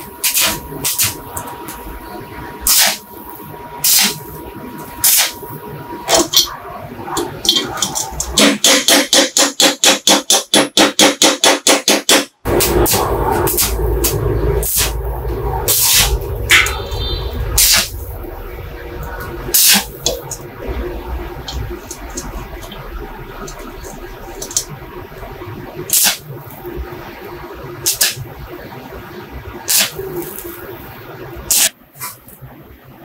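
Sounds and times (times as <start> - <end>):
torch rumble: 12.5 - 32.9.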